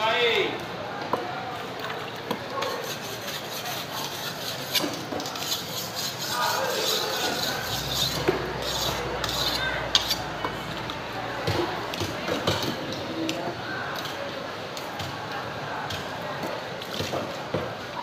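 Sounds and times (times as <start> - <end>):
knife cutting and scraping fish: 2.3 - 10.8.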